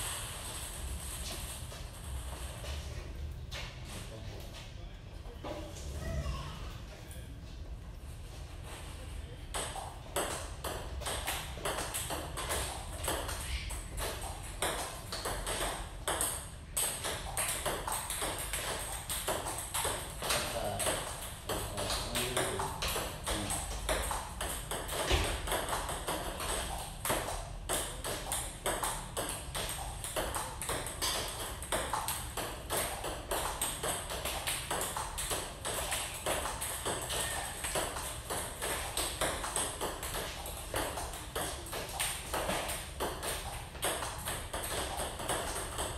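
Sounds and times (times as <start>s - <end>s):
ping-pong ball clicking off paddles: 9.5s - 45.9s.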